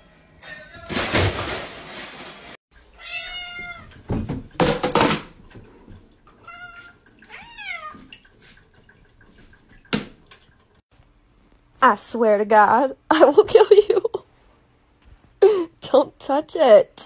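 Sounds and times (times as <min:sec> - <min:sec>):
rustling clatter: 0:00.9 - 0:02.6
cats meowing: 0:02.8 - 0:04.0, 0:06.3 - 0:08.1.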